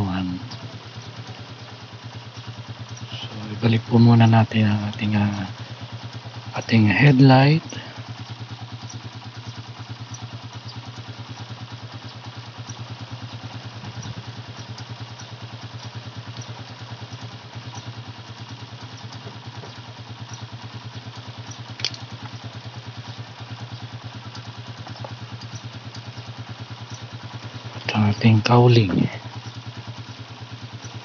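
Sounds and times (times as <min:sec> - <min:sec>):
motorcycle engine idling: 0:00.0 - 0:31.0
sharp click: 0:21.8 - 0:22.4.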